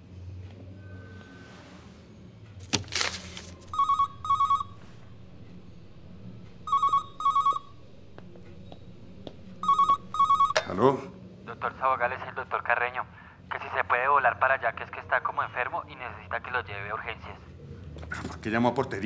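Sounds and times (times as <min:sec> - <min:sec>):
paper poster ripping: 0:02.6 - 0:03.6
intercom phone ringing: 0:03.6 - 0:10.9.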